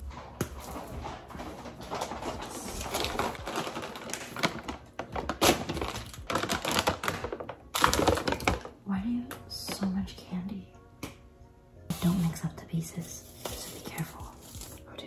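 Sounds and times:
plastic bags crinkling: 0.7s - 8.8s.

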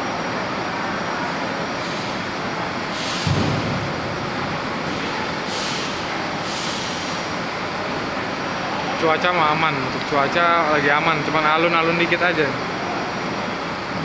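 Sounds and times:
air-brake hisses: 2.9s - 3.4s, 4.9s - 7.2s
low thud: 3.2s - 6.1s.

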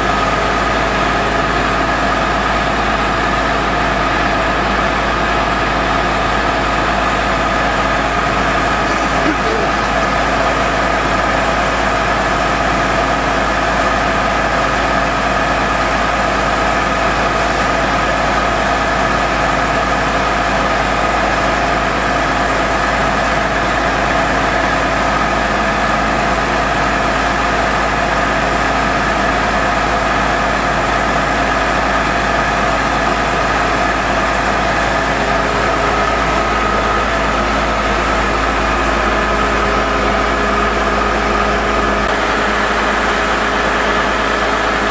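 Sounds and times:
engine humming: 6.9s - 11.7s, 31.5s - 44.9s
drilling rig high tones: 8.8s - 10.1s.

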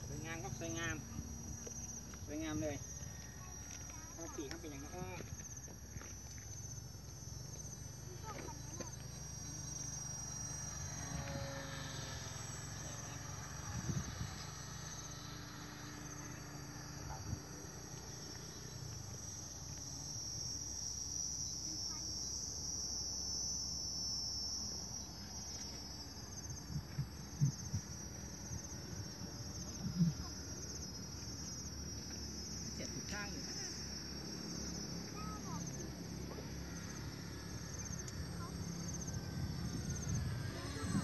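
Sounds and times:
insect chirring: 0.0s - 41.0s
wind rumble on microphone: 13.6s - 14.4s, 26.5s - 30.3s, 38.1s - 41.0s.

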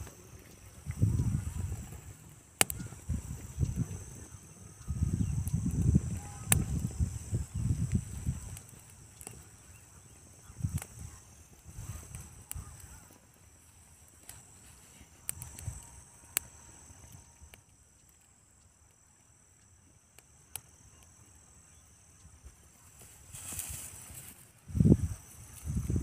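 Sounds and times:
high-pitched insect trilling: 0.0s - 18.7s, 20.5s - 26.0s
sharp clicks: 2.6s - 3.8s.

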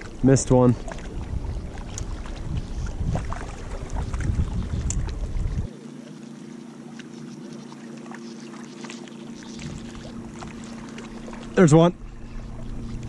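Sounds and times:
wind buffeting microphone: 0.0s - 5.7s, 9.6s - 10.6s
low steady hum: 0.0s - 13.0s
wavelets lapping at shore: 0.0s - 13.0s.

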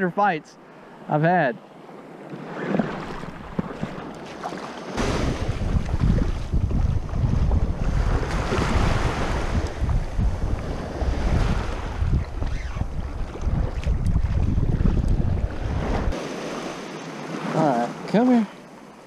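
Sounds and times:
small surf washing in: 1.9s - 19.0s
wind buffeting microphone: 4.9s - 16.7s.

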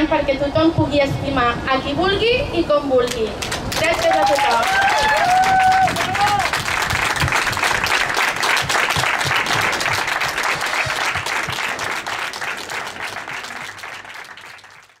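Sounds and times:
crowd applauding: 3.4s - 15.0s.

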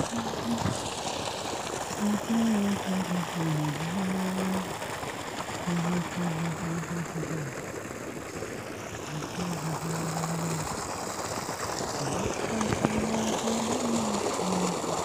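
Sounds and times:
person humming a slow tune: 0.0s - 0.8s
steady outdoor hiss: 0.0s - 15.0s.

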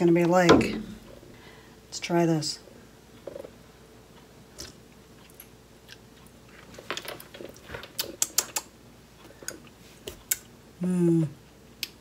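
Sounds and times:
wet lip smacks and mouth clicks: 7.7s - 8.7s.

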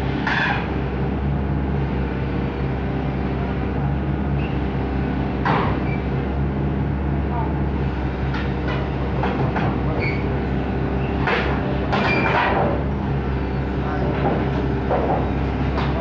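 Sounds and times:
excavator diesel engine running: 0.0s - 16.0s
steel tracks clanking and grinding: 7.9s - 16.0s.

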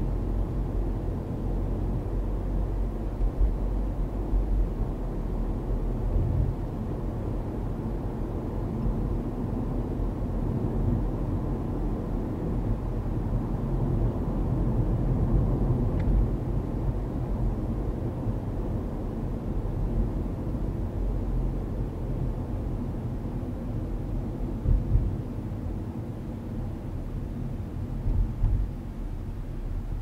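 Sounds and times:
road and engine rumble: 0.0s - 30.0s.

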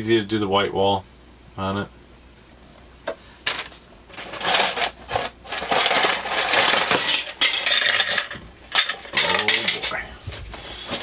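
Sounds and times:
plastic bag rustling: 3.5s - 11.0s.

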